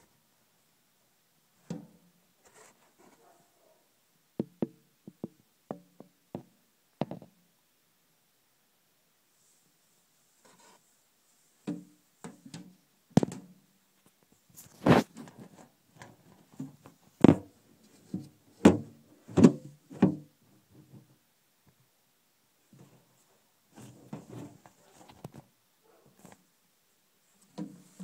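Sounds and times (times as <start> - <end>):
scraping and rustling: 2.4 - 3.5, 10.3 - 12.5, 14.0 - 18.6, 22.7 - 26.4.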